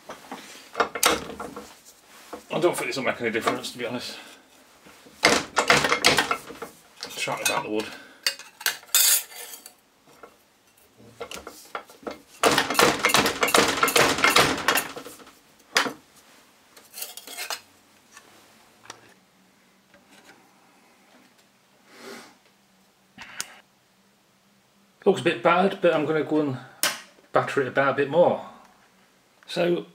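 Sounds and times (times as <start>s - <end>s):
wood and steel clattering: 0.0s - 10.4s, 11.0s - 16.0s.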